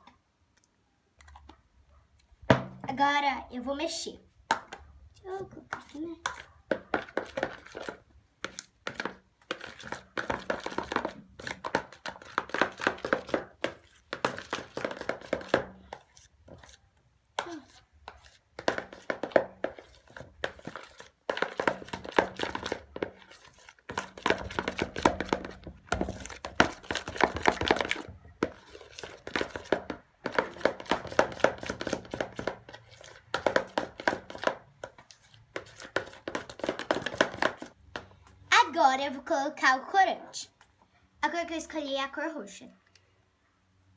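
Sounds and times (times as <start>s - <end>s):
spoon scraping plastic bowl: 5.7s - 37.7s.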